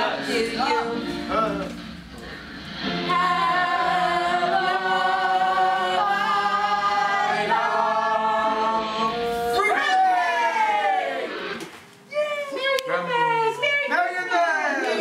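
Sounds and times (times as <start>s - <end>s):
group singing unaccompanied: 2.8s - 9.6s.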